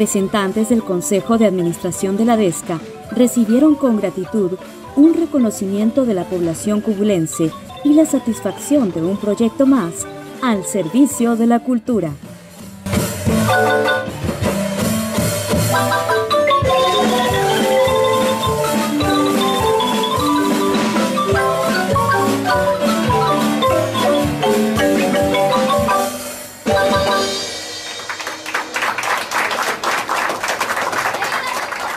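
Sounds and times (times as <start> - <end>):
marimba music: 0.0 - 28.2
people clapping: 27.8 - 31.9.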